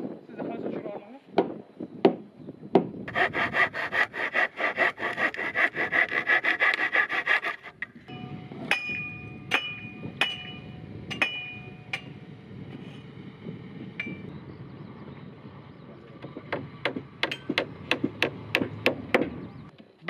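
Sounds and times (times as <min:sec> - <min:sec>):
hammer blows on nails: 0:01.4 - 0:08.0
handsaw cutting wooden board: 0:03.1 - 0:08.0
mallet knocking timber beam: 0:16.5 - 0:19.4.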